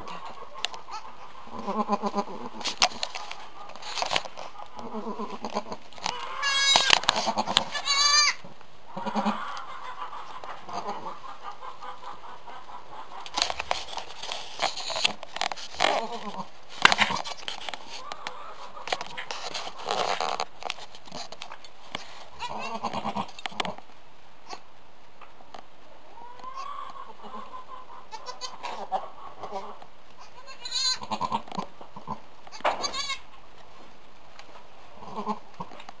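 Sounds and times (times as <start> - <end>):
goat murmuring calls: 0.0 - 3.8, 4.4 - 13.4, 22.3 - 23.8, 26.3 - 33.3, 35.0 - 35.8.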